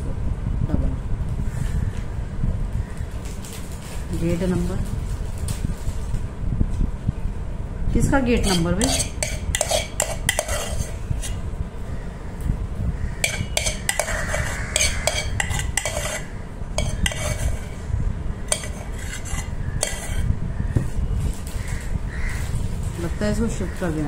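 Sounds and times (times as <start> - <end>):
steady low hum: 0.0 - 24.0
spoon scraping steel bowl: 8.3 - 11.5, 13.2 - 20.4.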